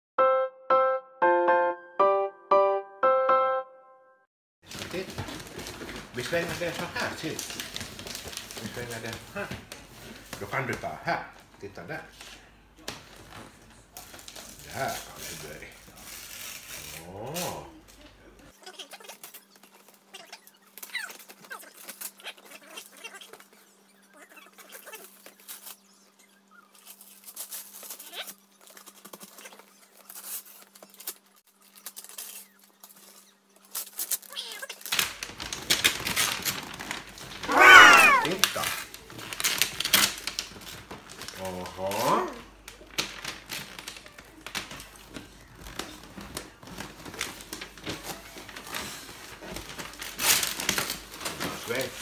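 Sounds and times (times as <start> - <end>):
wrapping paper tearing and rustling: 4.6 - 12.4, 13.0 - 52.0.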